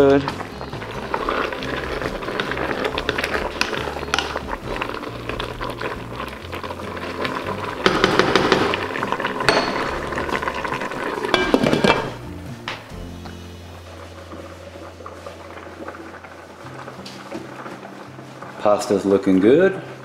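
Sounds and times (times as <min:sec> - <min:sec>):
wooden spoon scraping metal pot: 0:00.0 - 0:12.2
background music: 0:00.0 - 0:20.0.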